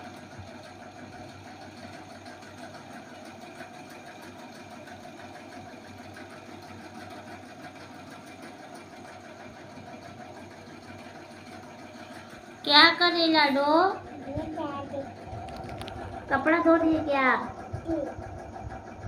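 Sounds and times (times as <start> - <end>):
small electric motor humming: 10.1 - 19.0.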